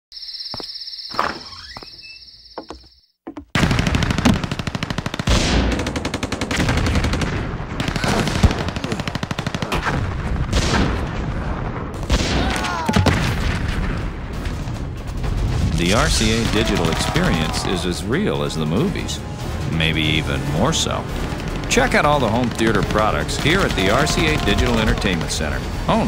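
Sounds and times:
very fast rattling pulses: 19.2 - 26.0.

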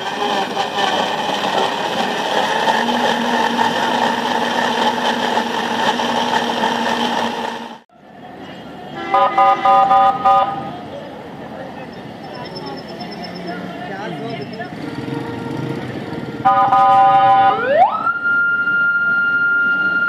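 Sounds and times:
blenders whirring: 0.0 - 7.9
vehicle horn toot: 8.9 - 10.8, 16.4 - 17.6.

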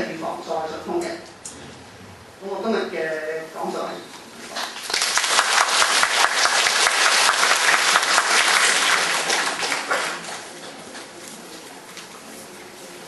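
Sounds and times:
audience applauding: 4.6 - 10.7.

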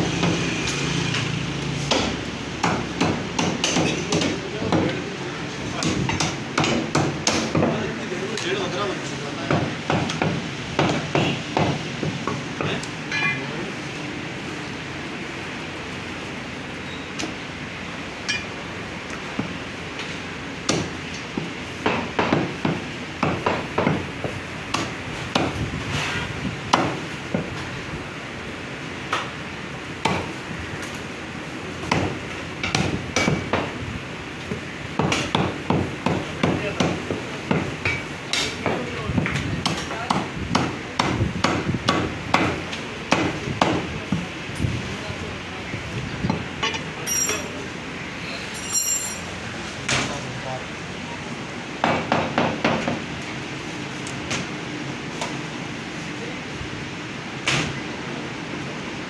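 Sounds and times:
cleaver chopping bone on wood: 1.9 - 5.0, 5.8 - 7.8, 9.5 - 12.8, 20.7 - 20.9, 24.7 - 25.6, 26.7 - 27.5, 30.0 - 30.3, 31.8 - 33.7, 35.0 - 37.7, 39.6 - 43.8.

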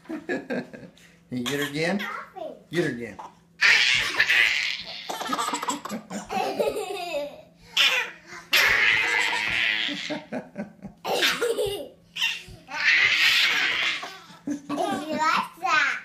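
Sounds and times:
infant laughing: 3.6 - 10.4, 11.0 - 15.4.

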